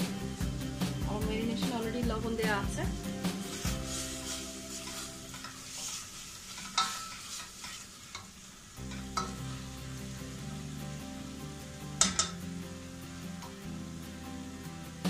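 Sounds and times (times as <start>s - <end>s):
spices sizzling in oil: 0.0s - 15.0s
spatula scraping a steel pot: 3.4s - 8.3s.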